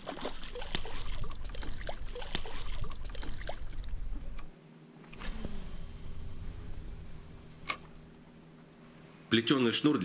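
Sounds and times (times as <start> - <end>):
water splashing at a small boat: 0.0 - 3.9.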